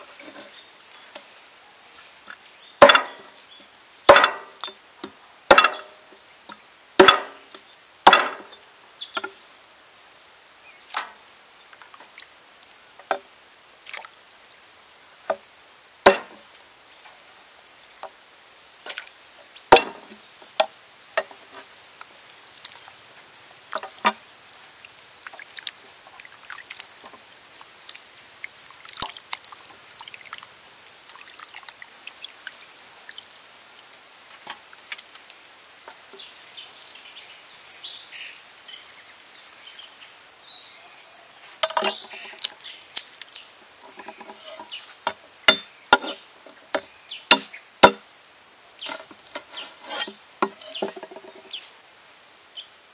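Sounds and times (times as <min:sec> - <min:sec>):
cleaver chopping on wooden board: 0:02.8 - 0:03.2, 0:04.1 - 0:04.7, 0:05.5 - 0:05.9, 0:07.0 - 0:07.4, 0:08.1 - 0:08.5, 0:16.1 - 0:16.4, 0:19.7 - 0:20.7, 0:44.4 - 0:48.0.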